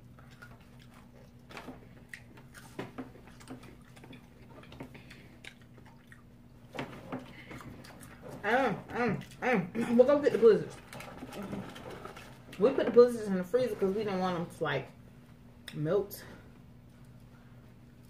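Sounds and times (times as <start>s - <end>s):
quiet chewing: 0.0s - 12.6s
faint low hum: 0.0s - 18.0s.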